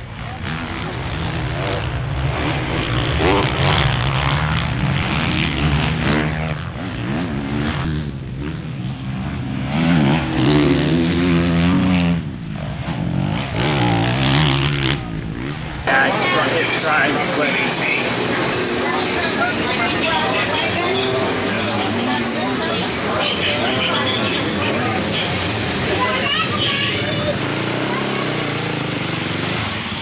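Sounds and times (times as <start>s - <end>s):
motocross bike engines revving: 0.0s - 30.0s.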